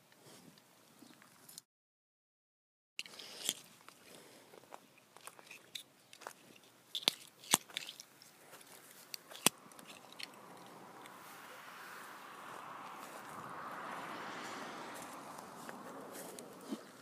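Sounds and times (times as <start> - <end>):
footsteps crunching on mulch: 7.6 - 17.0.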